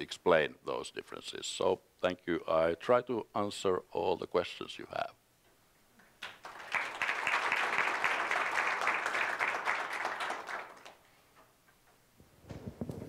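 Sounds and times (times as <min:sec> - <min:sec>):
audience applauding: 0:06.2 - 0:11.0.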